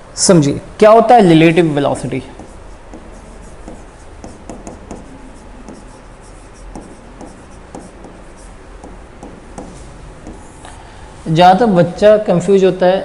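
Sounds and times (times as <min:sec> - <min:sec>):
stylus tapping and scratching screen: 0:02.3 - 0:10.8.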